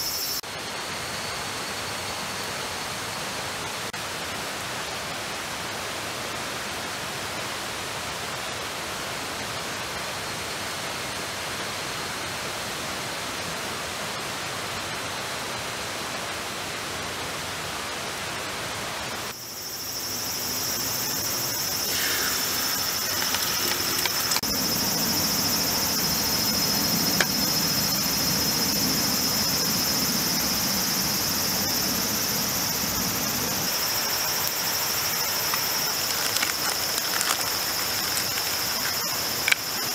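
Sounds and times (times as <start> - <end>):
falling water hiss: 0.0 - 39.9
eggs sizzling in oil: 20.9 - 24.5.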